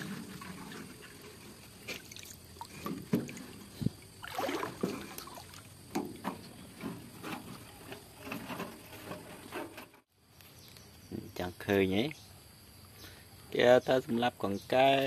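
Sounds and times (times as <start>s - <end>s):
water splashing and sloshing: 0.0s - 10.1s.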